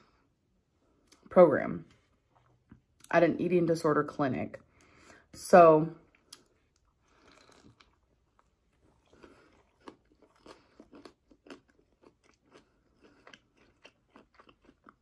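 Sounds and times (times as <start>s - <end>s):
close-miked chewing: 6.1s - 15.0s.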